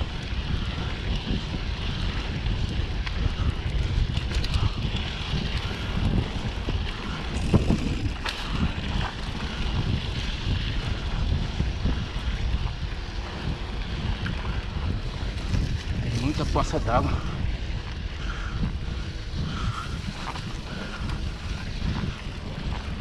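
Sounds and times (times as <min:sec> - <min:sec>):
wind buffeting microphone: 0:00.0 - 0:23.0
bike knocks and rattles: 0:00.8 - 0:11.0.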